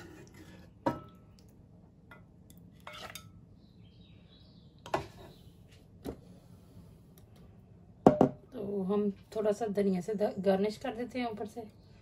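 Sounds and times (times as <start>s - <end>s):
metal spoon scraping steel pan: 0.0s - 0.7s, 2.8s - 3.3s.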